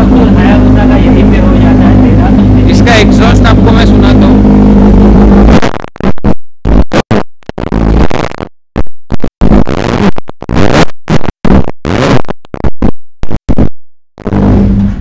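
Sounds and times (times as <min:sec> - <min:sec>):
motorcycle engine revving: 0:00.0 - 0:05.8, 0:14.2 - 0:15.0.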